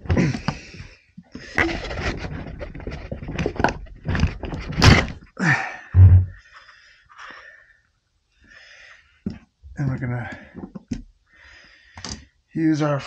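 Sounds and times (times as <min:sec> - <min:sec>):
heavy thump: 0:06.0 - 0:06.4.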